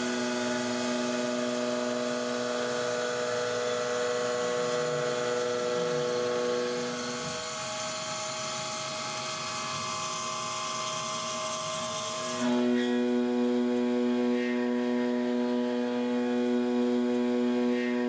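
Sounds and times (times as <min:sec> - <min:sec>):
milling machine cutting whine: 0:00.0 - 0:18.0.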